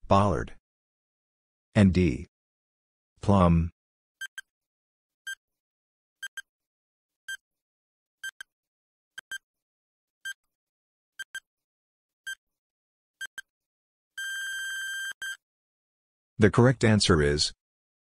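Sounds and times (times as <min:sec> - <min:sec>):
long steady beep: 0:14.2 - 0:15.4.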